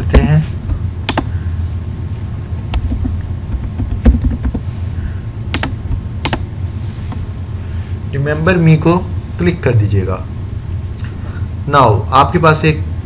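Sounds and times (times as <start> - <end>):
steady low hum: 0.0 - 13.0
keyboard keys clicking: 1.1 - 1.3, 2.7 - 4.6, 5.5 - 6.4.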